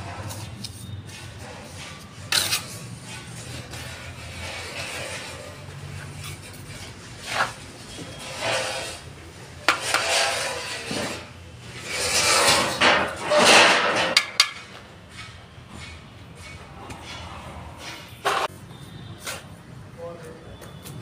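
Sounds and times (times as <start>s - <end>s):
trowel scraping mortar: 0.0s - 14.2s.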